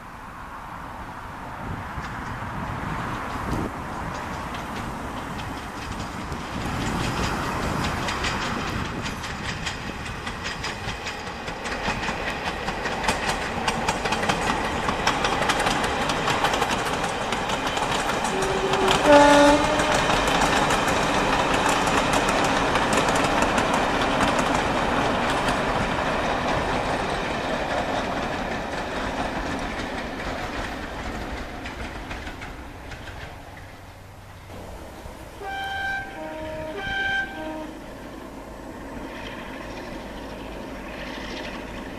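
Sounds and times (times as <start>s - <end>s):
diesel locomotive rumble: 0.0s - 41.9s
wheels clicking over rail joints: 1.3s - 41.9s
two-tone train horn: 18.2s - 20.4s, 35.2s - 38.1s.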